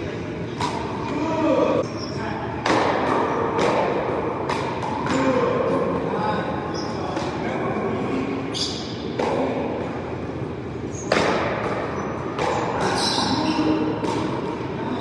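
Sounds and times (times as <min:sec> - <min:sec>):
paddles hitting ball: 0:02.6 - 0:05.5, 0:08.6 - 0:09.9, 0:11.0 - 0:14.7.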